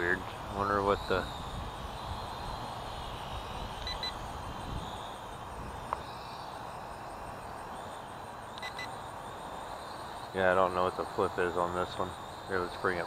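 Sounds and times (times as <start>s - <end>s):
wind noise on microphone: 0.0s - 7.8s
short electronic beeps: 3.8s - 4.2s, 8.6s - 8.9s.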